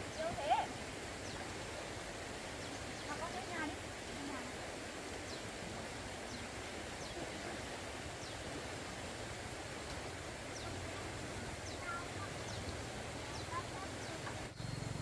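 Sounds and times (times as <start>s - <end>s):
faint high chirps: 11.6s - 15.0s.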